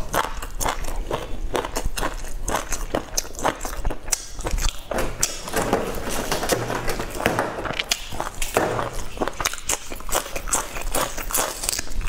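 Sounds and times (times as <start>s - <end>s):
mouth clicks and smacks: 0.0s - 5.6s, 7.6s - 12.0s
person chewing: 0.0s - 12.0s.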